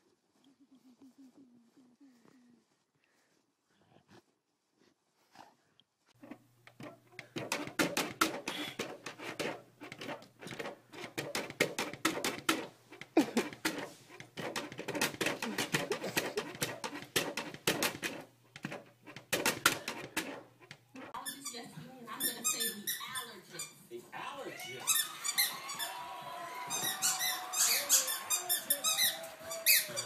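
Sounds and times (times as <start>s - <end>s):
cat pawing at glass door: 6.7s - 20.8s.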